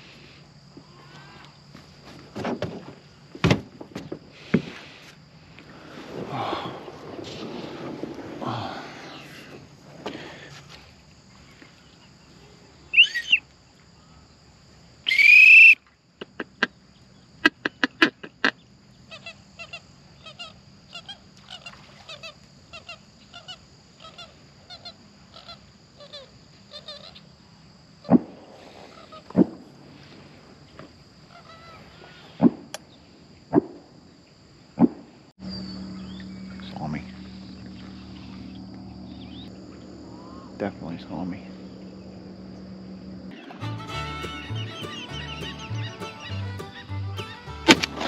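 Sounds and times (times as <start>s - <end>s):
waterfowl honking: 43.3s - 48.0s.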